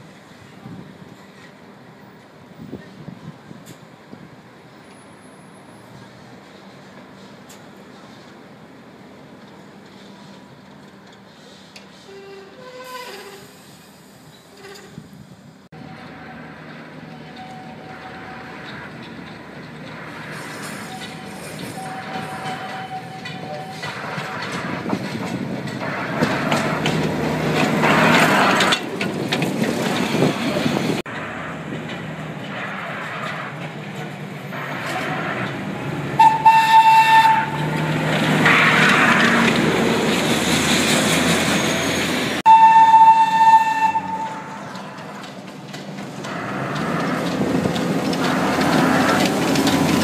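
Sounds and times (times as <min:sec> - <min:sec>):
train running on rails: 0:00.0 - 0:50.0
high train whistle blasts: 0:20.8 - 0:24.0, 0:36.2 - 0:37.8, 0:42.5 - 0:44.8.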